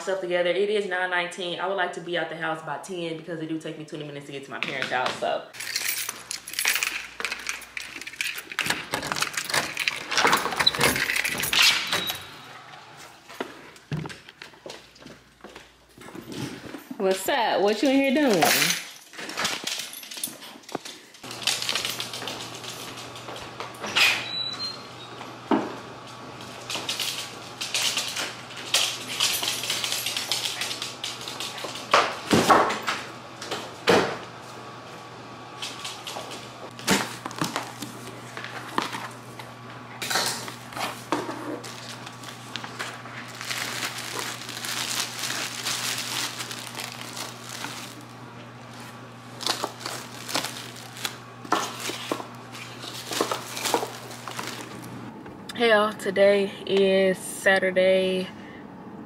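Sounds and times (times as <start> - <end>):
packaging rustling: 5.6 - 11.4, 40.0 - 54.9
low steady hum: 21.3 - 59.0.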